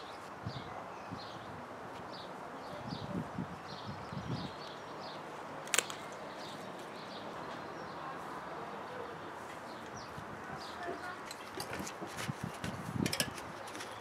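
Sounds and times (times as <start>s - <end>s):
small birds chirping: 0.0s - 14.0s
steady outdoor hiss: 0.0s - 14.0s
sharp click: 5.7s - 6.2s.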